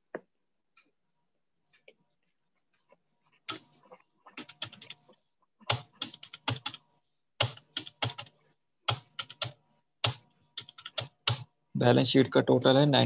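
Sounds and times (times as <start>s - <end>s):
calculator keys tapping: 5.7s - 6.8s, 8.9s - 11.5s.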